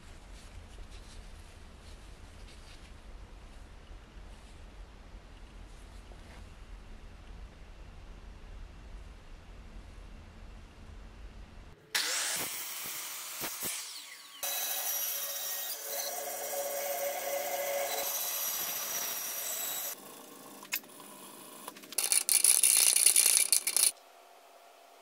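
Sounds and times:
band saw cutting wood: 0:11.9 - 0:20.0
mitre saw cutting wood: 0:11.9 - 0:20.0
drill boring into wood: 0:12.0 - 0:20.0.

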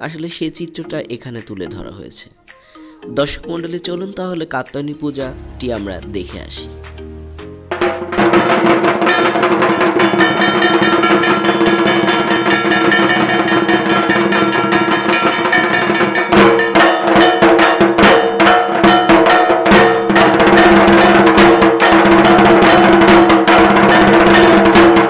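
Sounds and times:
steady pitched music: 0:00.6 - 0:08.5
drumming: 0:01.1 - 0:25.0
rapid metal bell strikes: 0:07.7 - 0:25.0.

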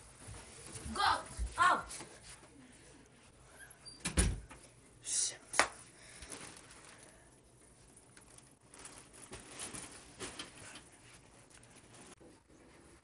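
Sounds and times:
faint rustling: 0:06.0 - 0:13.0.

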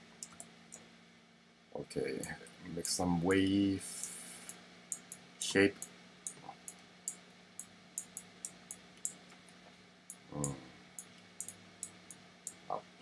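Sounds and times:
computer mouse clicking: 0:00.2 - 0:00.8, 0:10.4 - 0:12.6
man murmuring: 0:10.3 - 0:10.7.

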